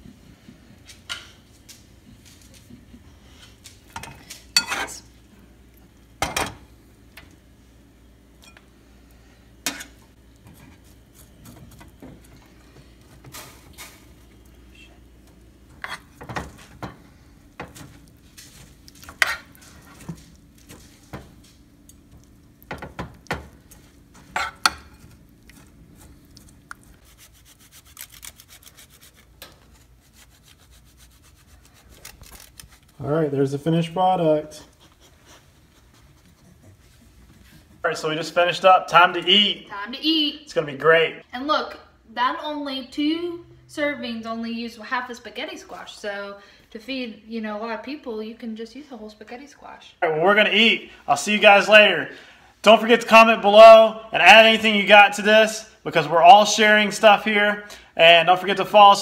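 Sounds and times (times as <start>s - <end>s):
cutlery clinking on dishes: 3.9s - 5.0s
cheese grating: 25.5s - 33.0s.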